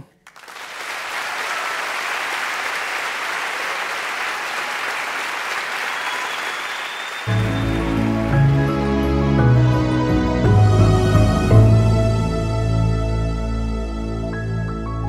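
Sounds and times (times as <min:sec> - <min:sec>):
audience applauding: 0:00.0 - 0:09.1
music: 0:07.3 - 0:15.0.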